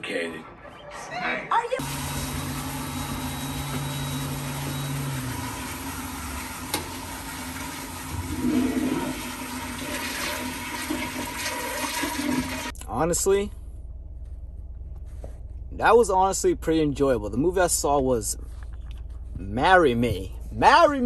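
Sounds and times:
toilet flushing: 0:01.8 - 0:12.7.

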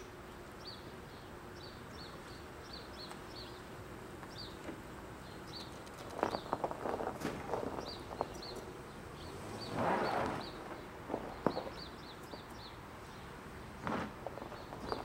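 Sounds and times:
small bird chirping: 0:05.2 - 0:13.4, 0:14.4 - 0:15.0.

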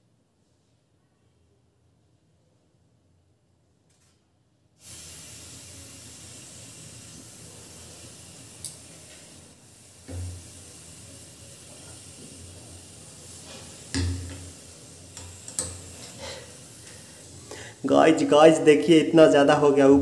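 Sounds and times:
gas burner flame hissing: 0:04.8 - 0:20.0.

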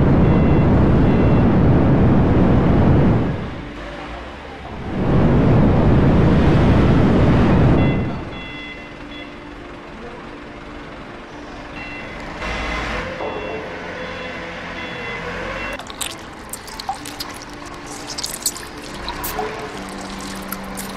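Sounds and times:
furnace burner roaring: 0:04.6 - 0:08.4
machine hum: 0:04.7 - 0:08.8.

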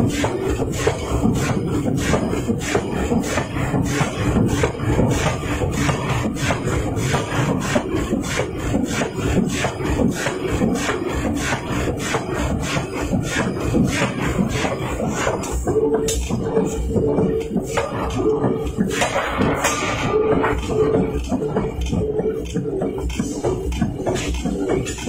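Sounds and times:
forging hammer striking steel: 0:17.7 - 0:20.9.

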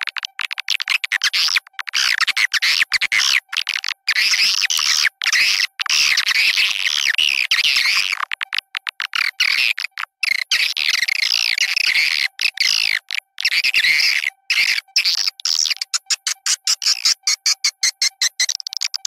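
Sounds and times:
high twittering bird chirps: 0:09.1 - 0:19.0.

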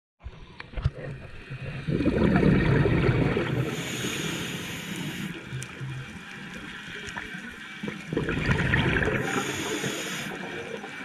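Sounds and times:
exhaled bubbles underwater: 0:00.7 - 0:11.0
regulator inhalation hiss: 0:03.6 - 0:05.7, 0:09.2 - 0:10.6.

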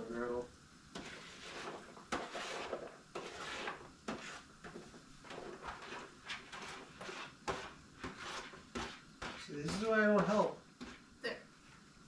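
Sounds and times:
scraping and rustling: 0:01.0 - 0:09.9.

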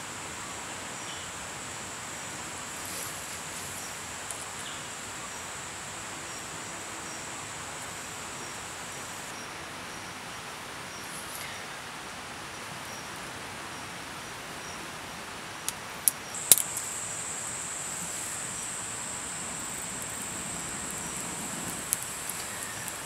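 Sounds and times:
sharp snaps: 0:15.7 - 0:16.9.

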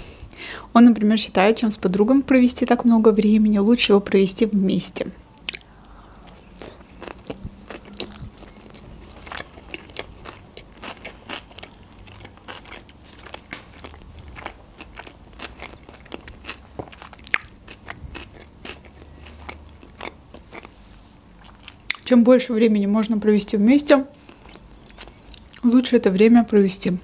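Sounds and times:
person chewing food: 0:05.4 - 0:22.1, 0:24.1 - 0:25.7.

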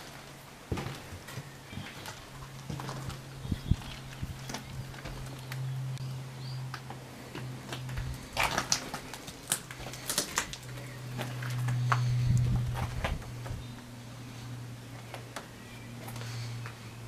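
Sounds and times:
footsteps: 0:00.0 - 0:05.6
debris clattering and crunching: 0:00.0 - 0:05.7, 0:07.3 - 0:13.6
low steady hum: 0:00.0 - 0:17.0.

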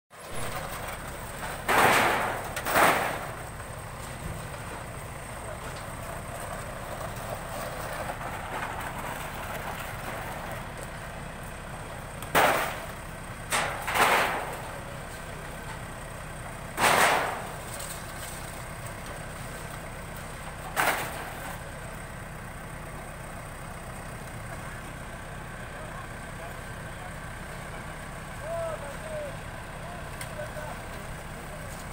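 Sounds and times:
diesel engine running: 0:00.1 - 0:31.9
loud sudden noises: 0:01.6 - 0:03.4, 0:13.5 - 0:14.7, 0:16.8 - 0:17.6.

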